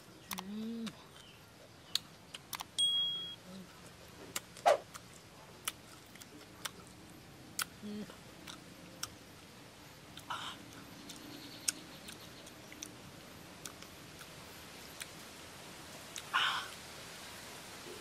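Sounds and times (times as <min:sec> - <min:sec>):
person chewing with lip smacks: 0:04.3 - 0:06.9, 0:08.4 - 0:09.2.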